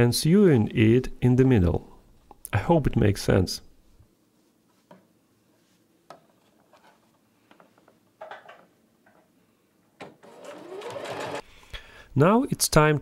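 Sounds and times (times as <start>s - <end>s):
sewing machine stitching: 10.0s - 11.4s.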